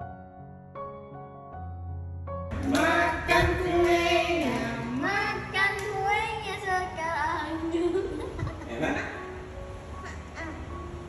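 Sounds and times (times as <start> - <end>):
child singing: 2.6 - 8.2
soft piano notes: 7.6 - 11.0.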